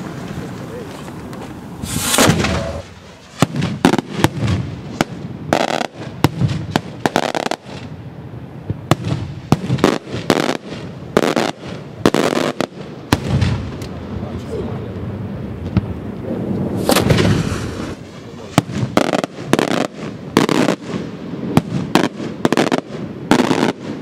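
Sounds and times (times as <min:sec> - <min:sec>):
rushing bursts: 0:01.6 - 0:03.3
fireworks bursting in sharp bangs: 0:01.7 - 0:08.0, 0:08.6 - 0:13.8, 0:16.6 - 0:24.0.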